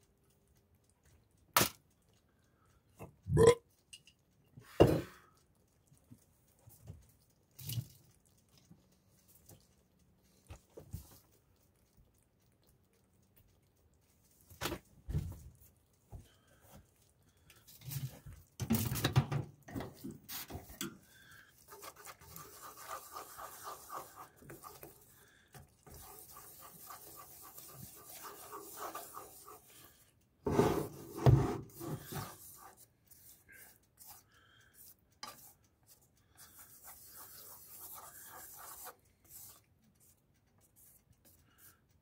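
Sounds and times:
wooden spoon scraping a pan: 21.6s - 25.1s, 25.8s - 34.2s
quiet knocks and rubbing: 30.4s - 32.6s.

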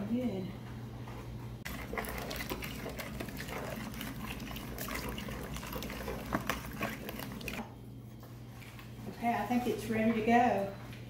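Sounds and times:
spoon stirring wet filling: 1.6s - 7.8s.

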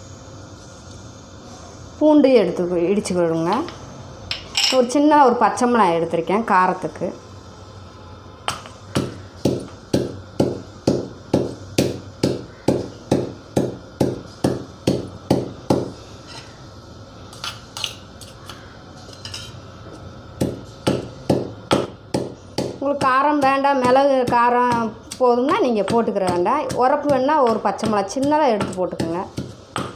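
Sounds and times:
pestle pounding in stone mortar: 8.5s - 15.9s, 20.4s - 29.9s.

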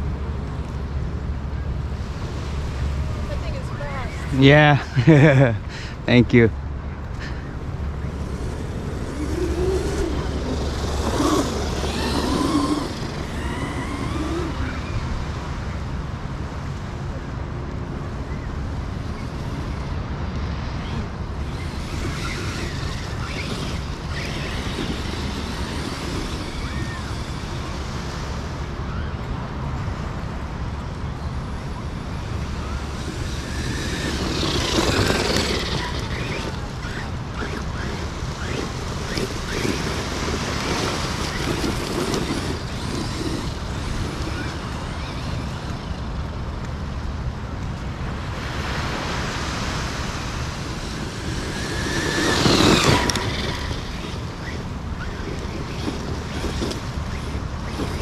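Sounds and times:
toy truck motor and drivetrain: 7.2s - 15.8s, 20.8s - 29.1s, 30.8s - 46.8s, 50.5s - 58.0s.

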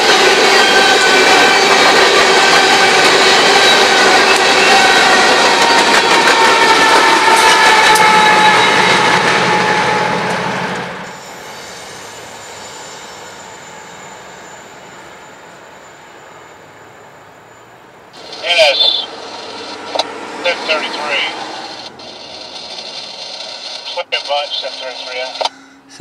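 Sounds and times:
train rumble: 0.0s - 12.4s, 18.2s - 26.0s
train wheels squealing on rail: 0.0s - 25.9s
diesel locomotive engine hum: 0.0s - 26.0s.

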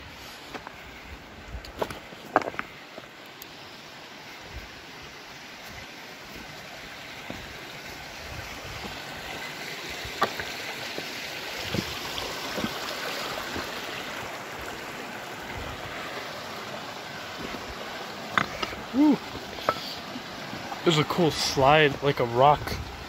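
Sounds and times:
creek water rushing over rocks: 0.0s - 23.0s
stones knocking underfoot: 1.6s - 3.1s, 10.1s - 12.9s, 18.3s - 19.9s.

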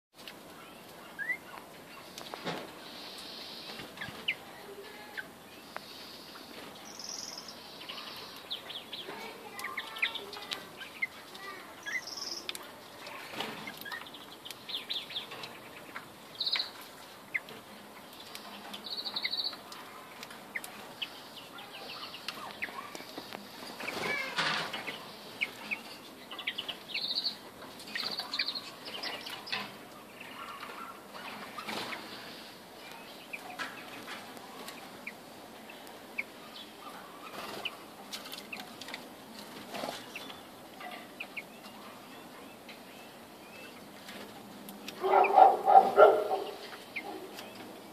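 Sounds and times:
birds fluttering in cage: 1.6s - 42.9s, 43.6s - 47.9s
finches chirping: 5.2s - 11.2s, 11.8s - 38.7s, 45.0s - 47.7s.

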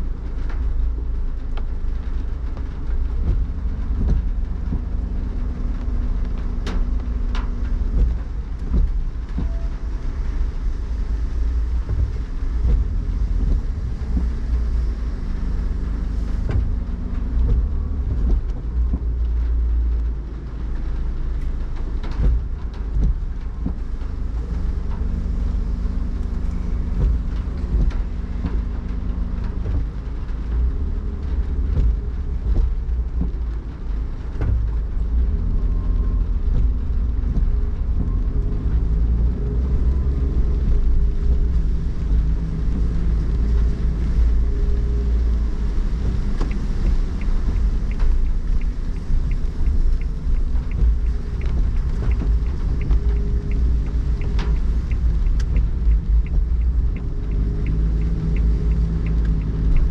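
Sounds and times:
car engine and tyre rumble: 0.0s - 59.9s
rain ticking on glass: 0.0s - 59.9s.

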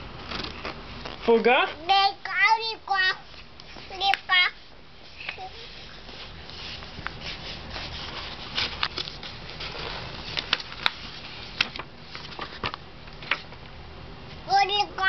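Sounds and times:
hands patting book pages: 3.2s - 13.6s
paper rustling: 3.2s - 13.6s.

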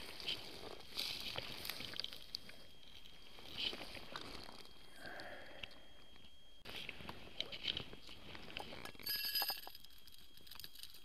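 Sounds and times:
hands rustling dry leaves: 0.0s - 4.8s.

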